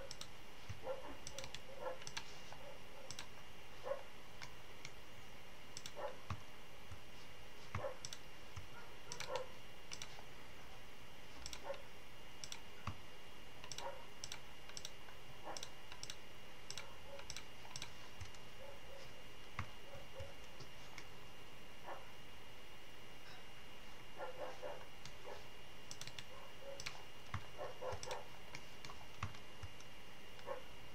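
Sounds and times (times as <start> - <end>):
mouse and keyboard clicks: 0.0 - 3.4, 5.7 - 7.0, 7.7 - 10.2, 11.3 - 11.8, 12.4 - 13.0, 13.6 - 18.4, 25.9 - 30.5.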